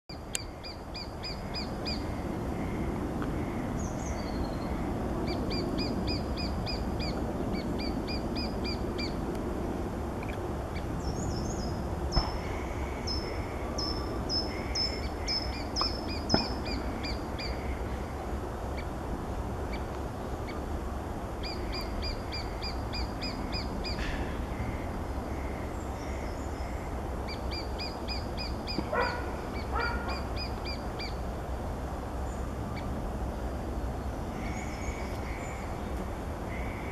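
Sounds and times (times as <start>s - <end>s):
steady low rumble: 0.1s - 36.9s
woodpecker calling: 12.1s - 18.0s, 21.4s - 26.4s, 27.3s - 31.2s.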